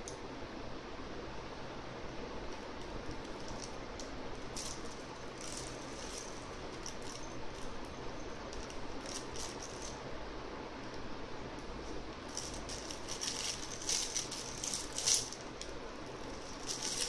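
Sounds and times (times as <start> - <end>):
steady low hum: 0.0 - 17.0
soft toy crinkling and rattling: 2.6 - 10.1, 11.8 - 17.0.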